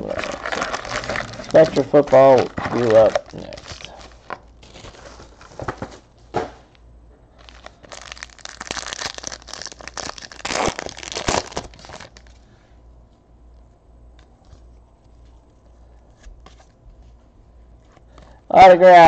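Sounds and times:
foil packs tearing open: 0.0s - 5.8s, 7.4s - 12.4s
foil wrappers crinkling: 0.0s - 6.0s, 7.3s - 12.5s.

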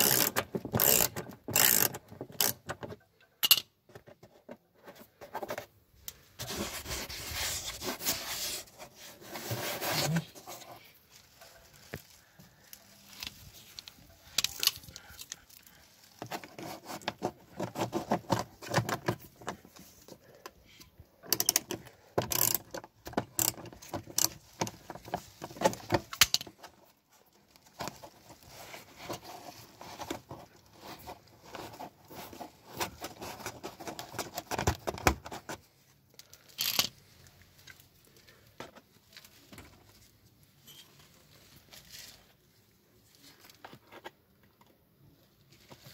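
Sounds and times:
tools clinking and scraping: 3.4s - 4.0s, 40.6s - 41.2s.

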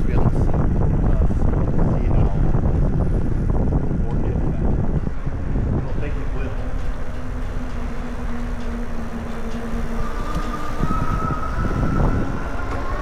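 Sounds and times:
rolling rumble: 0.0s - 13.0s
wind buffeting the microphone: 0.0s - 13.0s
electric motor whine: 4.8s - 13.0s.

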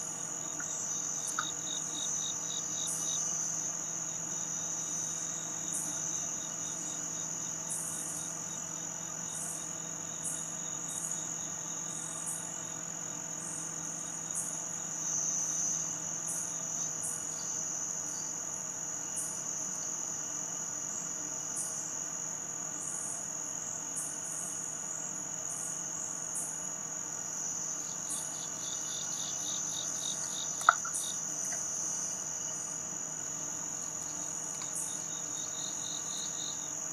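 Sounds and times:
insect high-pitched trill: 0.0s - 18.4s, 25.5s - 36.9s
fast pulsed insect trill: 0.0s - 36.9s
insect short chirps: 0.4s - 3.6s, 27.7s - 32.8s.

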